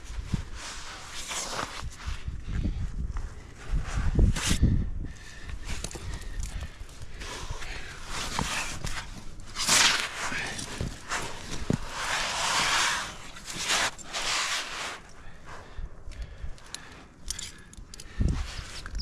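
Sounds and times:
clicks and scuffs of climbing gear: 0.0 - 19.0
hard breathing: 4.6 - 9.3, 14.6 - 18.9.

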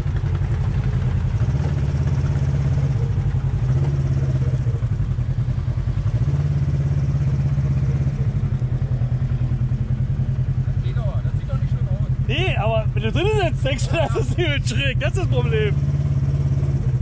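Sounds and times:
quad bike engine running: 0.0 - 17.0.

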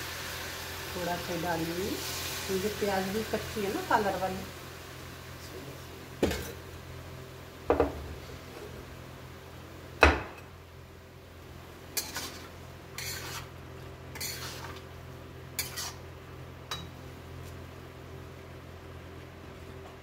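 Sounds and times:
spatula scraping steel pan: 12.0 - 13.5, 14.1 - 14.8, 15.6 - 16.0.

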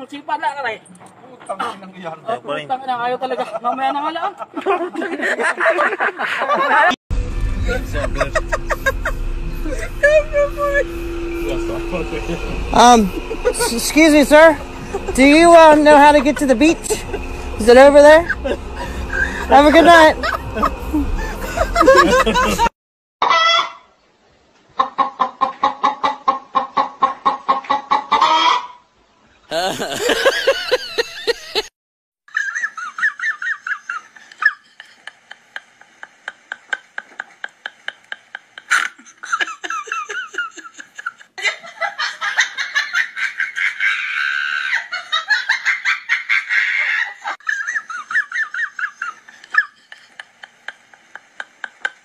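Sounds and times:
rapid hen-style clucking: 24.8 - 28.8
small child giggling: 29.5 - 31.7, 38.6 - 50.8.

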